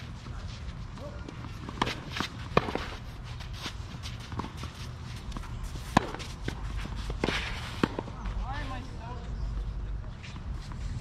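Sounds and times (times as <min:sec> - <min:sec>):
footsteps and shuffling on court: 0:00.0 - 0:11.0
tennis ball impact: 0:01.0 - 0:03.0, 0:03.6 - 0:08.1.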